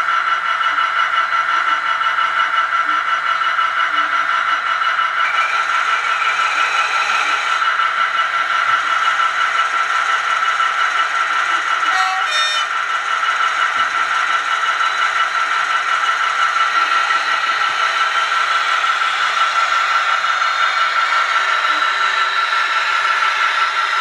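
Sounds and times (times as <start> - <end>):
model railway whirring and rattling: 0.0 - 24.0
constant high whine: 5.2 - 24.0.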